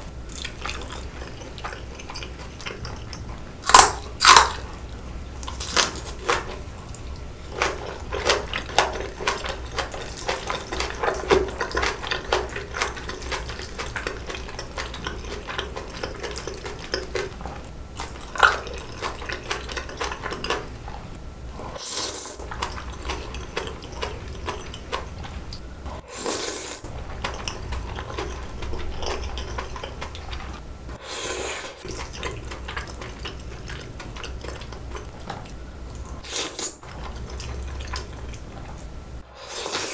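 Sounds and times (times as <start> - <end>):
wet chewing: 0.0 - 39.9
slurping noodles: 21.6 - 25.3, 25.9 - 35.0, 36.2 - 38.2, 39.2 - 39.9.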